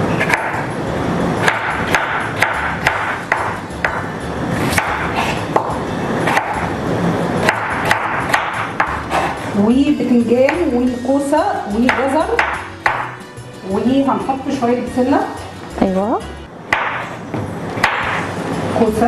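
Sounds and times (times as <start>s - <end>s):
knife chopping on cutting board: 0.1s - 0.7s, 1.4s - 6.7s, 7.4s - 9.5s, 11.8s - 13.2s, 16.7s - 18.3s.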